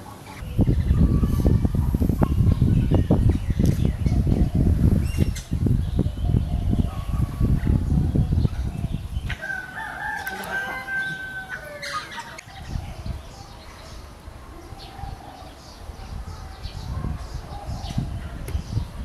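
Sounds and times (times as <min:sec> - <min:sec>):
small birds chirping: 0:00.0 - 0:19.0
rooster crowing: 0:09.4 - 0:12.4.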